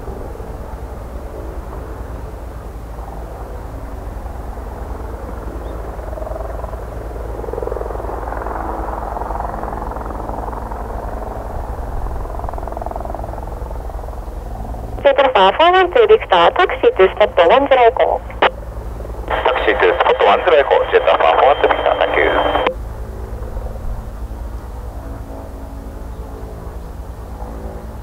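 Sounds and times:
helicopter hovering: 0.0 - 28.0.

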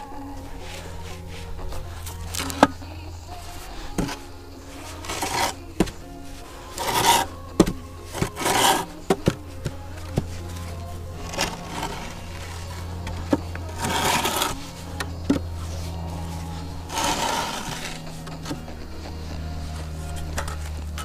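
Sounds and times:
wooden board scraping sand: 4.8 - 6.0, 6.7 - 10.6, 11.2 - 14.6, 15.2 - 19.1.

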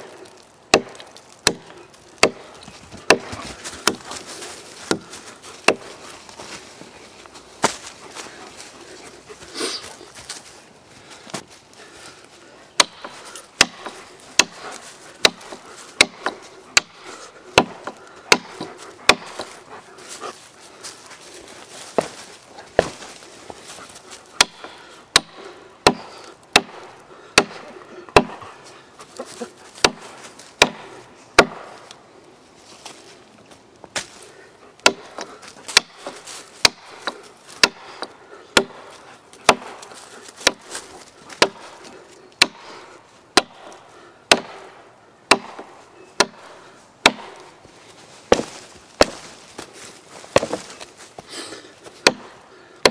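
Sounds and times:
hatchet chopping into log: 0.7 - 4.2, 4.8 - 6.0, 12.8 - 17.0, 17.6 - 19.6, 22.8 - 23.1, 24.4 - 28.4, 29.8 - 31.8, 34.8 - 42.7, 43.4 - 44.7, 45.3 - 47.5, 48.3 - 49.3, 50.3 - 50.8, 52.0 - 52.9.

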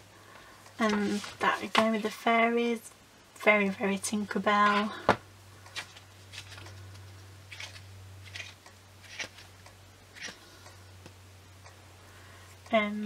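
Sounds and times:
low steady hum: 0.0 - 13.0
card sheets turning: 0.8 - 2.2, 5.7 - 9.6, 10.2 - 10.4.

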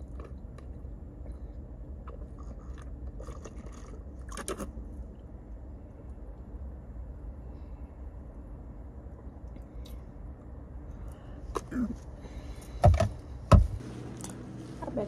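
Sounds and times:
chewing and biting food: 0.0 - 5.1
low hum: 0.0 - 15.0.

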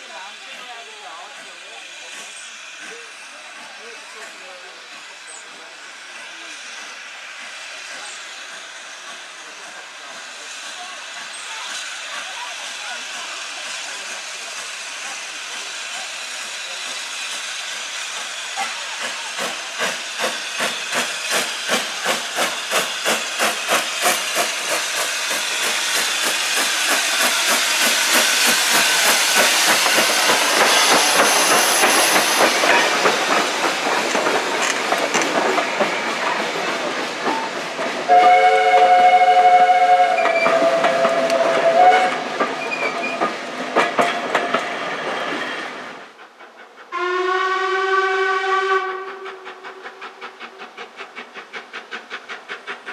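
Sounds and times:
hiss of steam: 0.0 - 52.9
steam locomotive exhaust beats: 0.0 - 52.9
steam whistle: 38.1 - 42.2, 46.9 - 49.7
low-pitched steam whistle: 38.1 - 42.3, 46.9 - 50.1.

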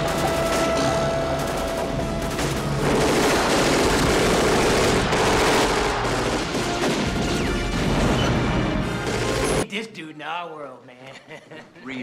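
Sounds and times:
rapid automatic gunfire: 0.0 - 8.1, 9.0 - 9.6.

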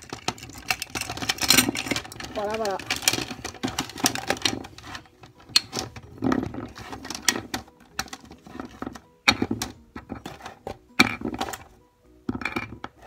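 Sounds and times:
plastic figures clicking and knocking: 0.0 - 13.0.

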